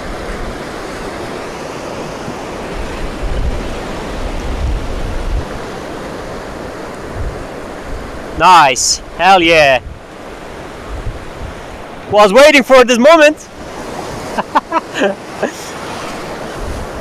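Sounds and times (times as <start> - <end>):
ocean surf breaking on sand: 0.0 - 17.0
wind buffeting microphone: 2.1 - 12.2, 16.2 - 17.0.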